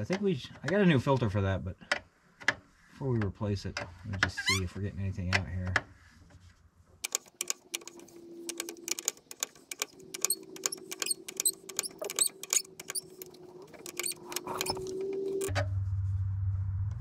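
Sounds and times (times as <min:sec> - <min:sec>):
ratchet wrench clicking: 0:07.0 - 0:15.5.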